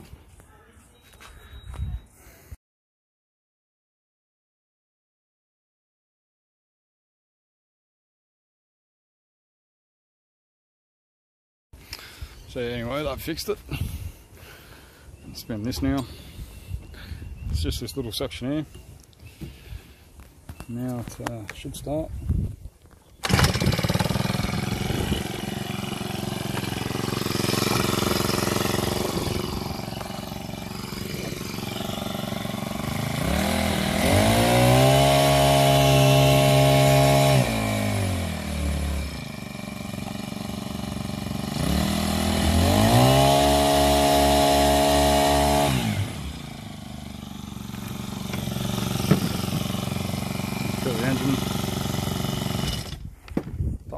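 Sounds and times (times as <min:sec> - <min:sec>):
outboard motor revving: 0:23.2 - 0:53.0.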